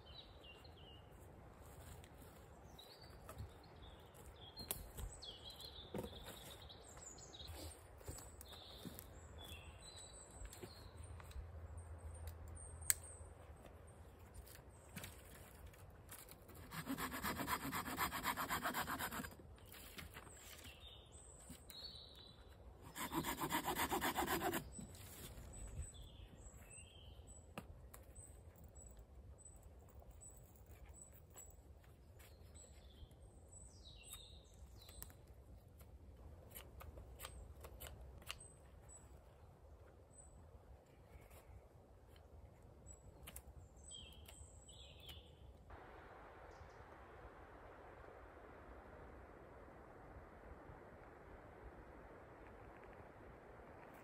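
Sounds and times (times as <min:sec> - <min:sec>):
hand saw cutting wood: 0:16.6 - 0:19.4, 0:22.8 - 0:24.7.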